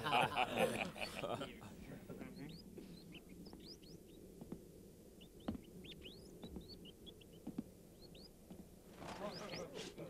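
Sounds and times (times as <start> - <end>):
rats squeaking: 2.2 - 4.6, 5.2 - 10.0.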